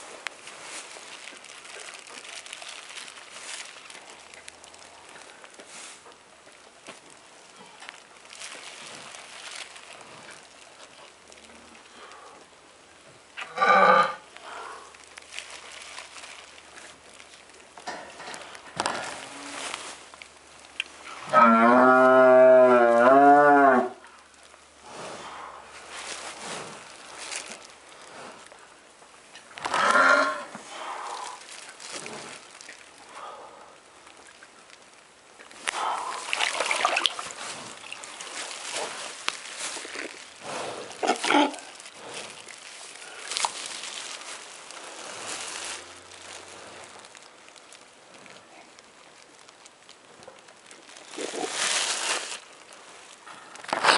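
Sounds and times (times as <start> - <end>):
plastic sleeve rustling: 0.0 - 12.2, 14.3 - 21.8, 24.1 - 28.6, 29.4 - 33.4, 34.1 - 53.9
cattle breathing and grunting: 14.4 - 15.0, 24.3 - 28.8, 29.6 - 33.9, 35.6 - 36.4, 37.3 - 43.7, 44.7 - 47.2
cow breathing hard and straining: 30.6 - 32.5, 40.4 - 43.3.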